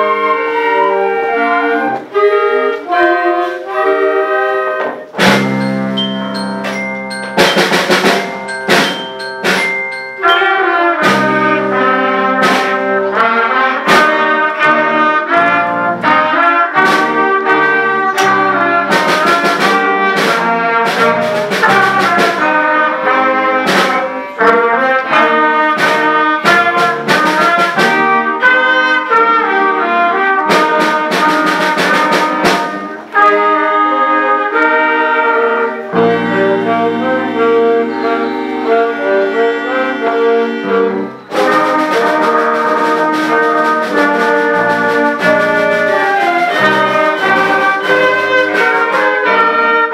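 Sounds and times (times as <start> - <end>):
woodwind and brass melody: 0.0 - 49.9
percussion beat: 5.1 - 14.4, 15.3 - 33.2, 41.2 - 49.9.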